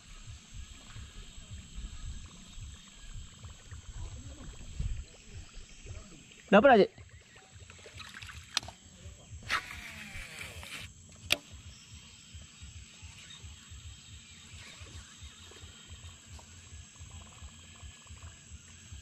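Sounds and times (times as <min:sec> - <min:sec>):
outdoor background: 0:00.0 - 0:19.0
reel spool whirring: 0:00.0 - 0:19.0
fishing reel click: 0:07.6 - 0:08.8, 0:09.4 - 0:11.9.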